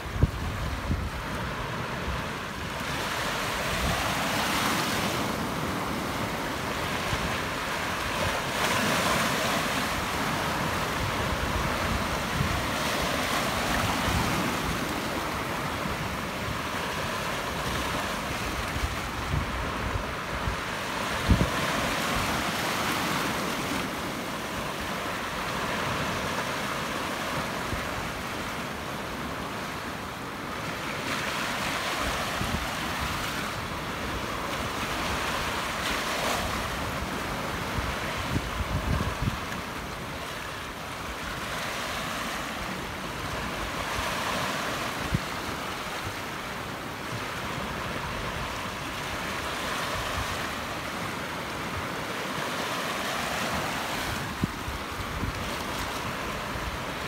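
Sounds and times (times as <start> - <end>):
sea waves washing over rock: 0.0 - 57.0
wind buffeting microphone: 37.6 - 39.5.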